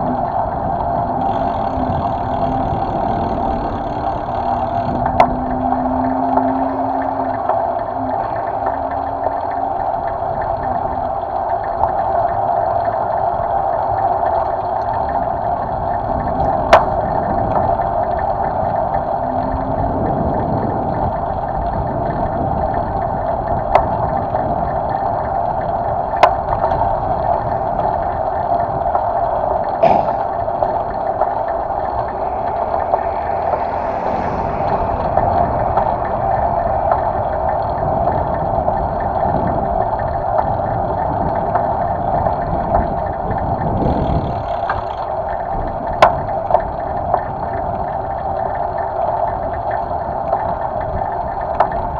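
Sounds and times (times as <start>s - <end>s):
wind and tyre noise: 0.0s - 51.9s.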